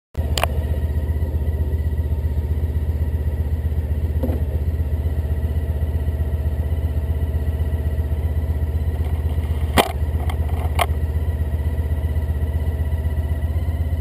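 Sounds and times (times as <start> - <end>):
motorcycle engine idling: 0.2 - 14.0
short knock: 4.2 - 4.5.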